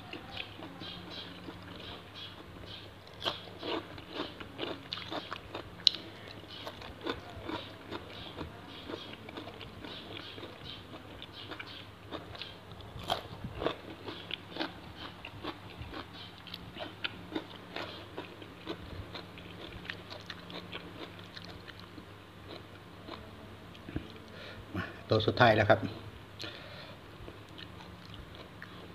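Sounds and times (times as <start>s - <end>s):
man chewing crunchily: 0.2s - 24.4s, 27.2s - 28.9s.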